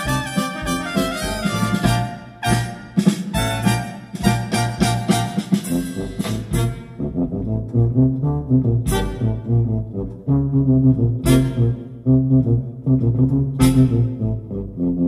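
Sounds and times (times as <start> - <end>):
brass jazz music in car: 0.0 - 15.0.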